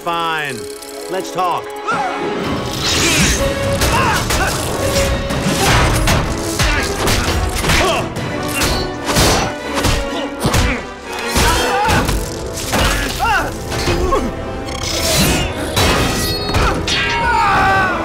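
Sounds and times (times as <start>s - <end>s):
punches and hits: 5.4s - 14.0s.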